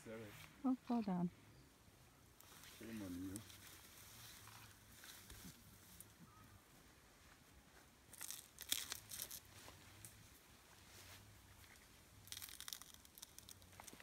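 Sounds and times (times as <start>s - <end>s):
bamboo tearing and crackling: 8.1s - 10.2s, 11.6s - 14.0s.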